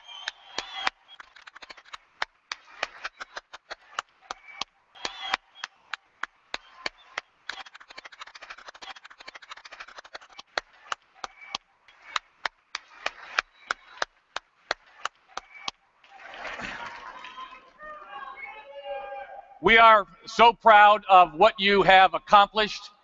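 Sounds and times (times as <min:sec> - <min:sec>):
audience applause: 0:00.0 - 0:11.3
sharp hand claps: 0:00.0 - 0:15.8.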